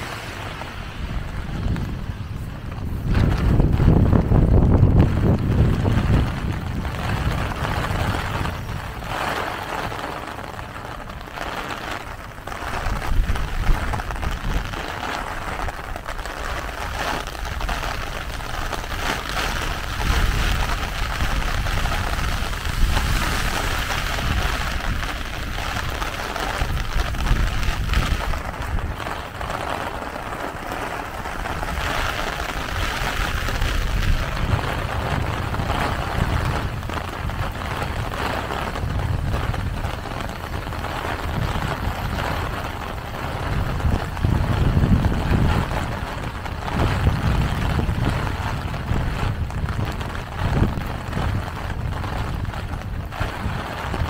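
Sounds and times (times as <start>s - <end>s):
heavy rain on umbrella and pavement: 0.0s - 54.0s
wind buffeting microphone: 0.0s - 54.0s.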